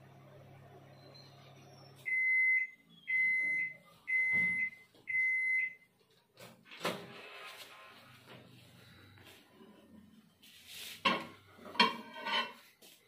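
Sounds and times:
microwave humming: 0.0 - 10.3
microwave beeps: 0.1 - 5.9.

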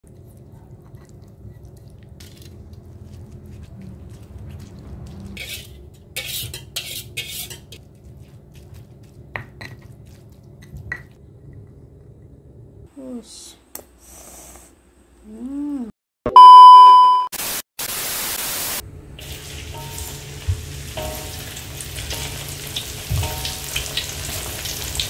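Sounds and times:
stone pestle grinding in mortar: 1.0 - 11.2
pestle scraping metal bowl: 3.6 - 7.8
pestle knocking on mortar: 9.2 - 9.9.

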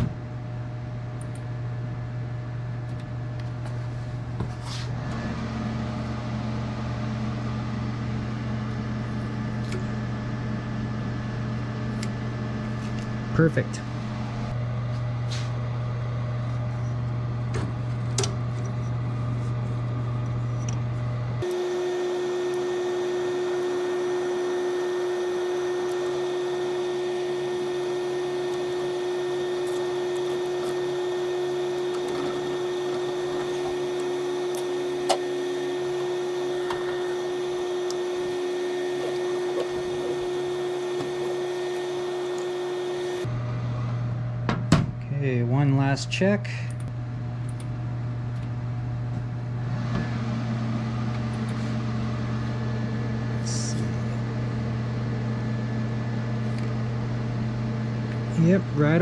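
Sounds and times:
laser cutter hum: 5.0 - 44.4.

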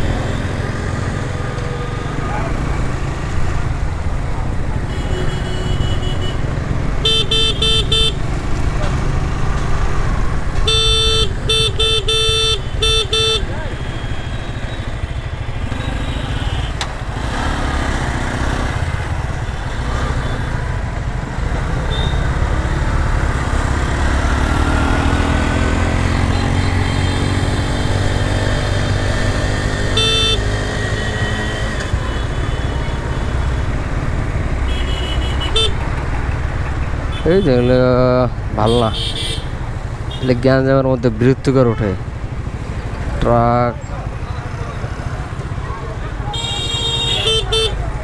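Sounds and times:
wind and road noise: 0.0 - 48.0
vehicle horn honking: 4.9 - 6.4, 7.0 - 8.2, 10.6 - 16.8, 21.9 - 22.2, 29.9 - 33.1, 34.7 - 35.8, 38.7 - 40.3, 46.3 - 47.9
motorcycle engine accelerating: 14.7 - 32.4.

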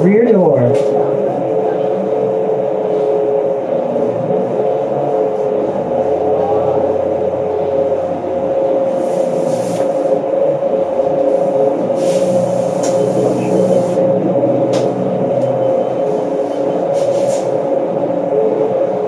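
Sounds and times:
bus engine drone: 0.0 - 19.0
constant whine: 0.0 - 19.0
hiss: 8.9 - 10.2, 11.9 - 14.0.

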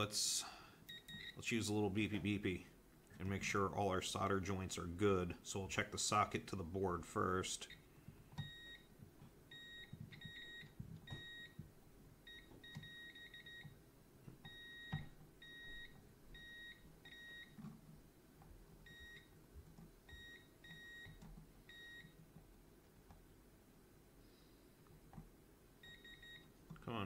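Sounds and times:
multimeter beeping: 8.4 - 8.9, 9.5 - 11.6, 12.3 - 13.7, 14.4 - 17.6, 25.8 - 26.5.

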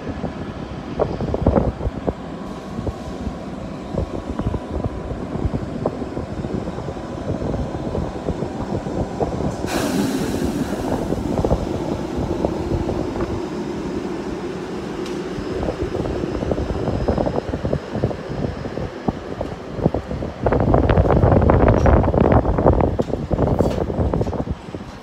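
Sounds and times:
freight train wagons rumbling: 0.0 - 25.0
sudden hiss: 9.6 - 11.7.

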